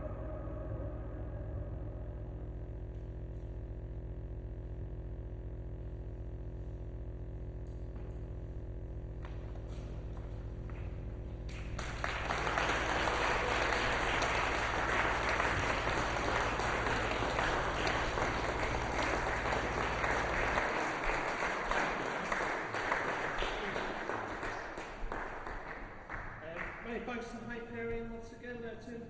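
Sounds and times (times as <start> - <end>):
low steady hum: 0.0 - 29.0
audience applauding: 10.2 - 27.1.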